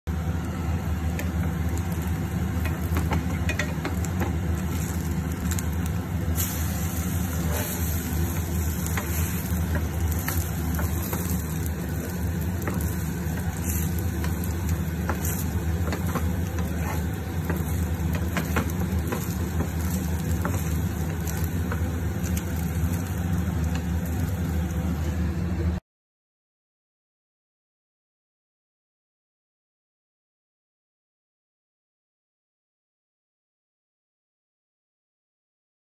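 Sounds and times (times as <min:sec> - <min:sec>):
steady low hum: 0:00.1 - 0:25.8
toast sizzling in a pan: 0:00.8 - 0:25.2
wooden spatula scraping and tapping: 0:02.6 - 0:05.7, 0:07.3 - 0:22.9.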